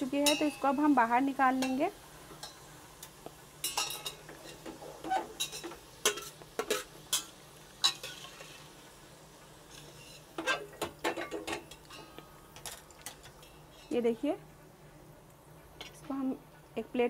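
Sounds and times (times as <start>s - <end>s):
faint oil sizzle: 0.0s - 17.0s
spatula scraping a steel pot: 9.7s - 10.7s.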